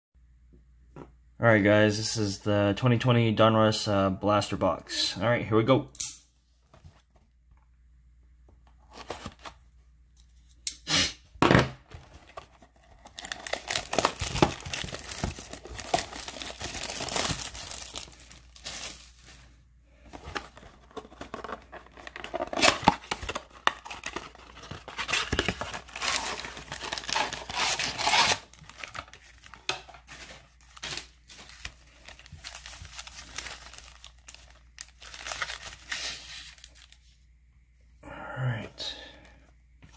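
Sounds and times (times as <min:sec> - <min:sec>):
plastic wrap and cardboard tearing: 0:12.2 - 0:19.4, 0:21.1 - 0:37.0
wrapped packs crinkling: 0:12.2 - 0:19.6, 0:20.3 - 0:37.0.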